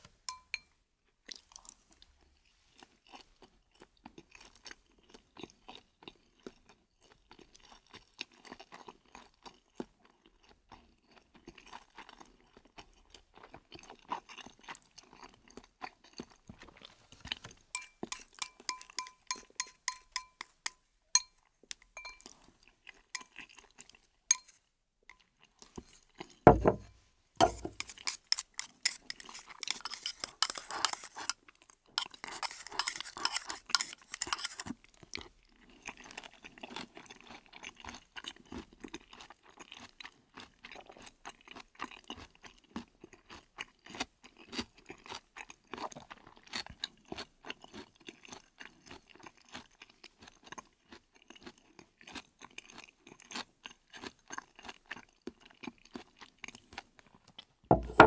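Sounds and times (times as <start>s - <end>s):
fork clinking on plate: 0.3s - 0.7s, 17.8s - 21.4s, 22.0s - 22.3s, 24.3s - 24.6s, 26.5s - 31.4s, 32.0s - 34.6s, 57.7s - 58.0s
chewing noodles: 0.3s - 26.4s, 27.5s - 57.6s.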